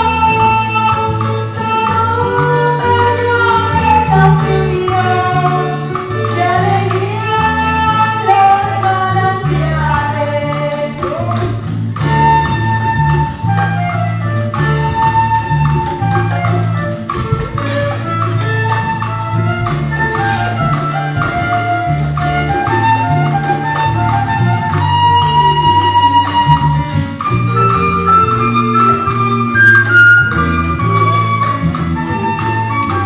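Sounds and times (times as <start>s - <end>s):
person singing: 0.0s - 12.4s
steady bass line: 0.0s - 32.9s.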